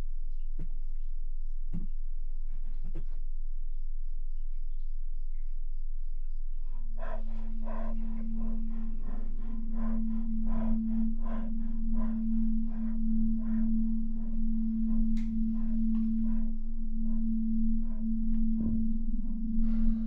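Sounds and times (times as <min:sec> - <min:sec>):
soft rhythmic pulsing: 0:00.0 - 0:20.0
low drone hum: 0:06.7 - 0:20.0.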